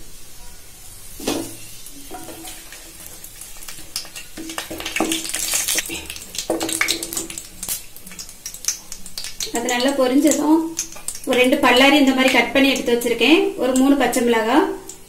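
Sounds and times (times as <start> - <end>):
spices sizzling in oil: 0.0 - 15.0
wooden spatula scraping a pan: 1.1 - 3.4.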